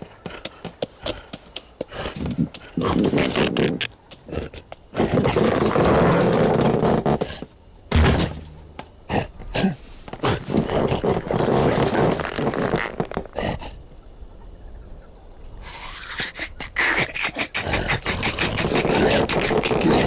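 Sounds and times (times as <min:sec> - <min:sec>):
scuffling sound effects: 0:05.0 - 0:13.4
heavy thud: 0:07.9 - 0:09.6.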